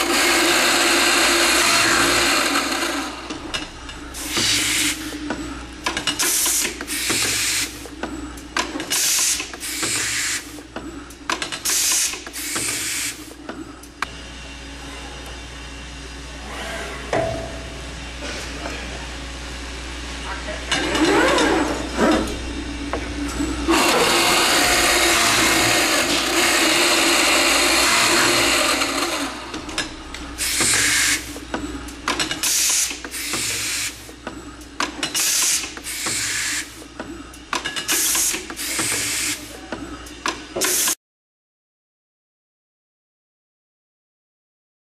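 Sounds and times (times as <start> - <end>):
boring machine cutting wood: 0.0 - 3.2, 23.7 - 29.5
steady machine hum: 0.0 - 37.6
pneumatic air hissing bursts: 8.9 - 10.6, 11.6 - 13.3, 30.4 - 31.4, 32.4 - 34.1, 35.2 - 36.9, 37.9 - 39.5, 40.6 - 41.0.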